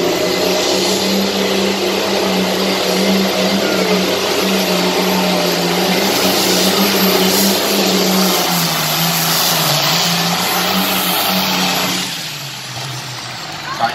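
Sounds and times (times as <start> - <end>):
tractor diesel engine running flat out: 0.0 - 13.9.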